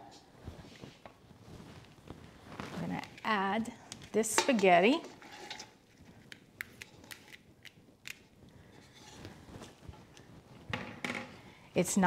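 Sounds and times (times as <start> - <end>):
wooden spoon scraping a pot: 4.4 - 6.0, 8.7 - 9.8.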